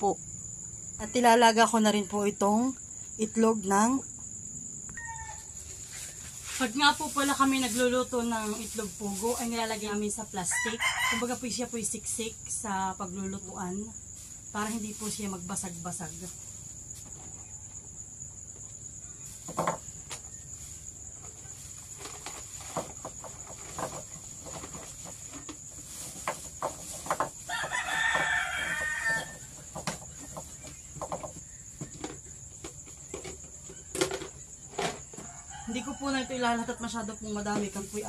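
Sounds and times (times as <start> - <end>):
crickets chirring: 0.0 - 38.0
rooster crowing: 5.0 - 5.6, 10.5 - 11.4, 27.5 - 29.5, 35.2 - 36.8.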